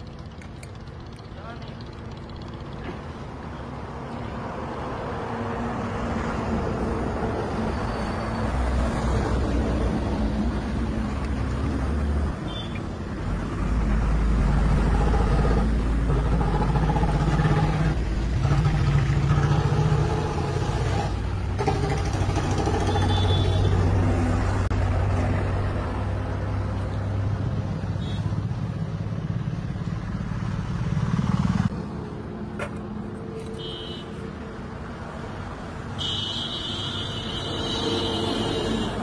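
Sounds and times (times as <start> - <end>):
motorcycle engine running: 0.0 - 3.2, 14.4 - 20.6.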